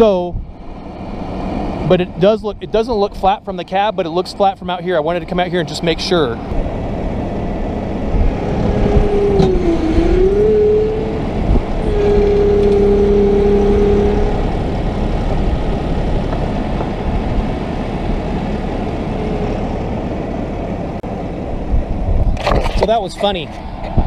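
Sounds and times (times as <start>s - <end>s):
diesel tractor engine under load: 0.0s - 24.0s.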